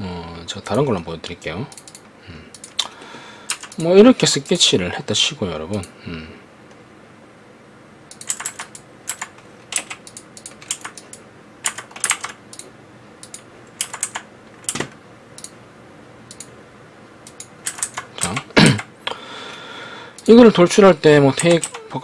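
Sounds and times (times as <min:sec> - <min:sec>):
keyboard and mouse clicking: 0:01.7 - 0:02.9, 0:03.5 - 0:04.6, 0:08.1 - 0:15.6, 0:16.3 - 0:16.5, 0:17.2 - 0:18.9, 0:21.4 - 0:21.9.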